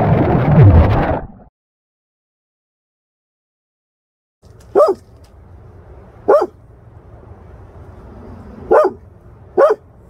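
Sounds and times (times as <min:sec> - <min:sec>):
dog barking: 0:04.7 - 0:05.1, 0:06.3 - 0:06.6, 0:08.6 - 0:09.0, 0:09.6 - 0:09.9.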